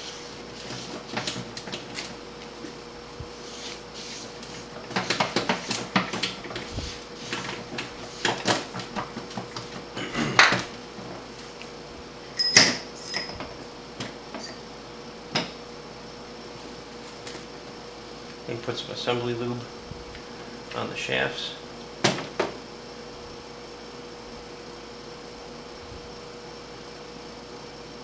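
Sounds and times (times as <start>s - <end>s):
rag wiping metal: 3.3s - 8.4s.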